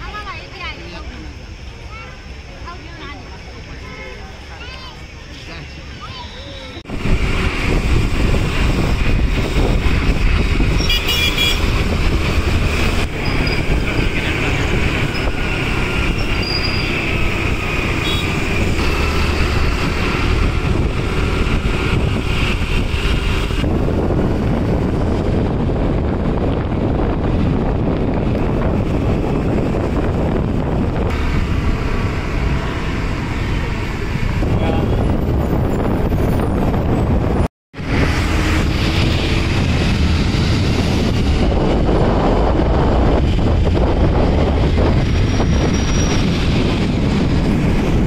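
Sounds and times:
road traffic rumble: 0.0s - 48.0s
car horn toot: 10.8s - 11.7s, 18.0s - 18.4s.

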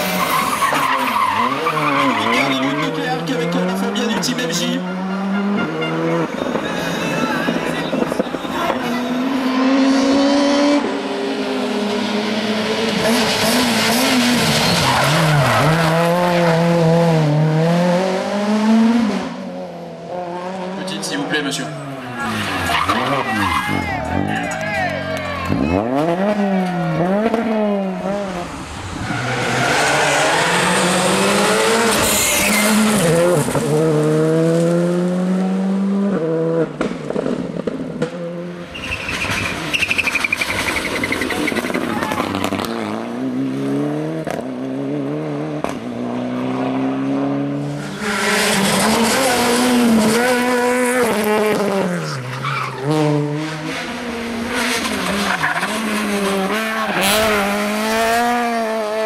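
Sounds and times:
tyre squeal: 0.0s - 3.0s, 32.0s - 32.9s, 38.7s - 42.4s
rally car engines revving: 0.0s - 59.0s.

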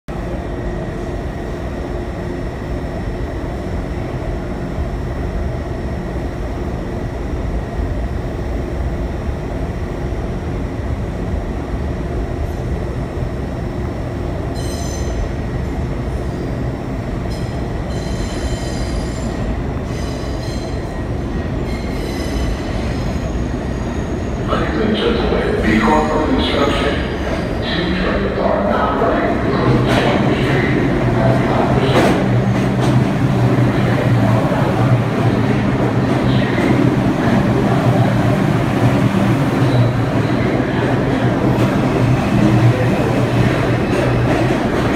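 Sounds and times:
subway train rumble: 0.0s - 44.9s
steel wheels squealing on rails: 14.6s - 15.2s, 17.3s - 20.9s, 21.6s - 24.6s.

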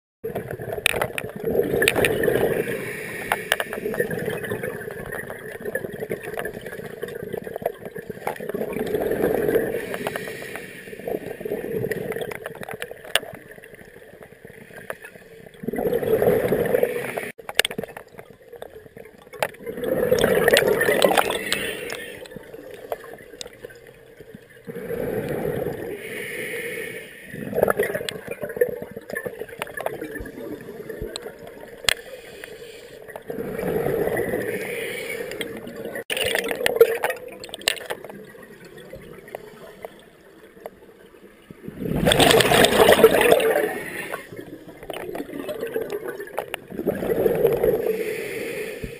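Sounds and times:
bubbles from underwater breathing: 0.3s - 10.3s, 15.6s - 17.3s, 19.6s - 23.8s, 24.5s - 26.0s, 33.2s - 34.6s, 41.6s - 48.6s.

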